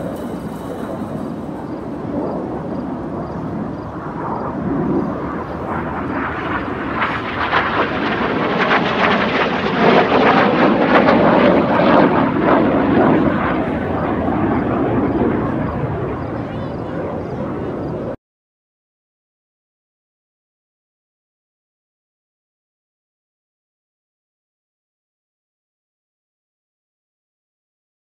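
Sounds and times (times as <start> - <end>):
jets roaring overhead: 0.0 - 18.2.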